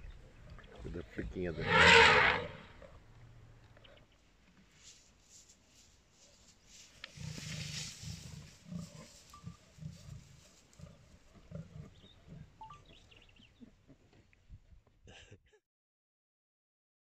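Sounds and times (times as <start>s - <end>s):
lions growling: 0.6s - 3.0s, 7.0s - 13.9s.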